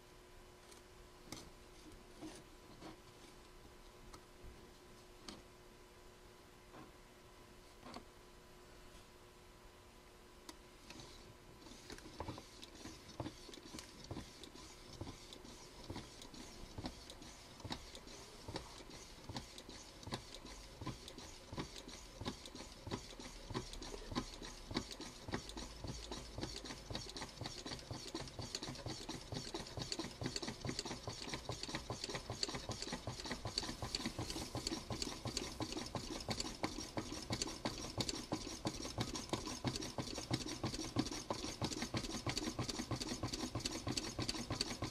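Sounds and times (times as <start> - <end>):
engine linkage clicking rhythmically: 11.8 - 44.9.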